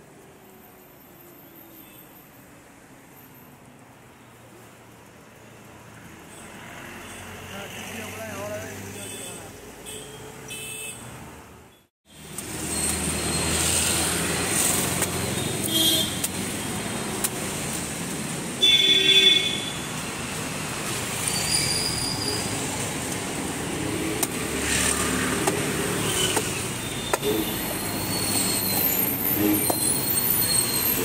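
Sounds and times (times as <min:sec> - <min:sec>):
motorbikes passing: 0:06.0 - 0:09.7, 0:12.4 - 0:15.7, 0:19.7 - 0:31.0
vehicle horn honking: 0:15.5 - 0:16.2, 0:18.6 - 0:19.8.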